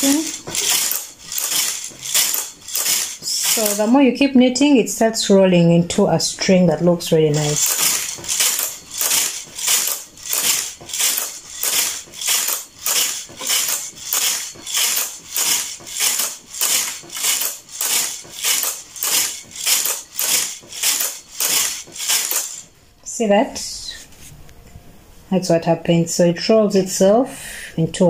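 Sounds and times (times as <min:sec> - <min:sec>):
knitting machine carriage rasping: 0:00.0 - 0:04.0, 0:07.3 - 0:22.7.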